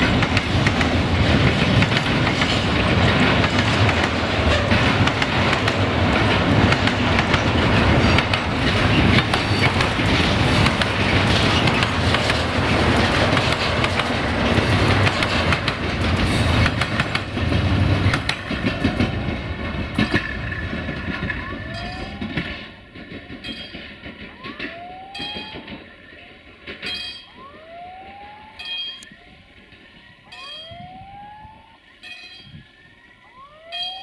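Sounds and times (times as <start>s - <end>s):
train wheels clicking over rail joints: 0.0s - 27.4s.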